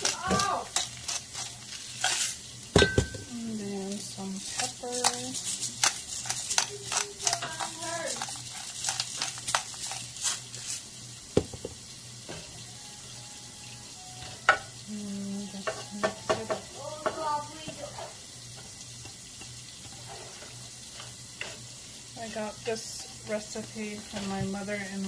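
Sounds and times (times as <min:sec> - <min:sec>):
spatula scraping and stirring: 0:00.0 - 0:02.6, 0:03.4 - 0:11.0, 0:15.6 - 0:25.0
chicken sizzling in frying pan: 0:00.0 - 0:25.0.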